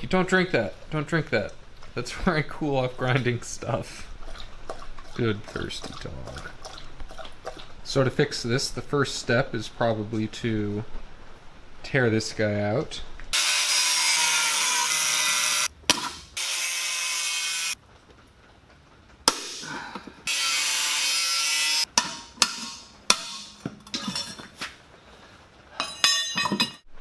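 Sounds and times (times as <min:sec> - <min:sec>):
angle grinder cutting steel: 0:13.4 - 0:15.7, 0:16.4 - 0:17.8, 0:20.3 - 0:21.9.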